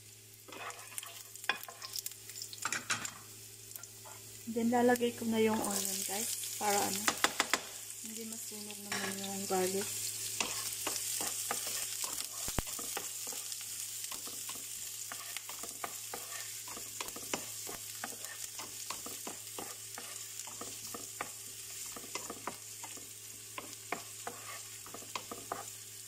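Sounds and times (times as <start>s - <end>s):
onion and garlic sizzling in oil: 0.0s - 26.0s
wooden spatula scraping pan: 0.5s - 1.8s, 14.5s - 21.1s, 23.6s - 25.7s.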